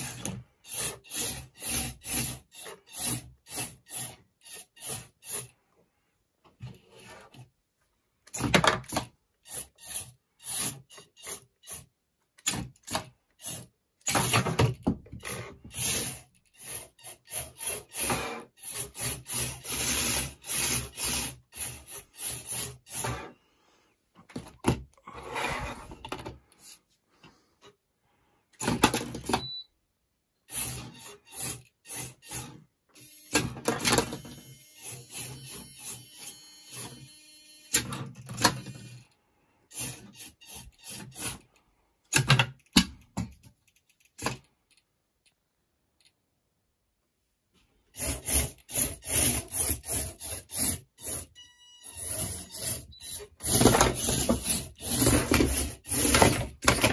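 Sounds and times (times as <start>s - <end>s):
small drive motors whirring: 33.0s - 37.8s.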